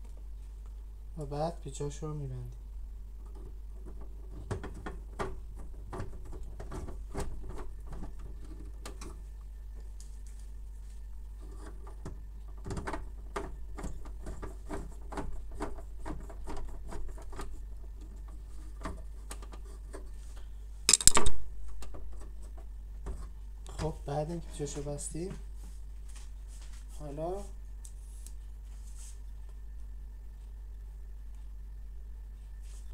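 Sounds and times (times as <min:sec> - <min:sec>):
screwdriver clicks and scrapes: 0:20.9 - 0:21.4.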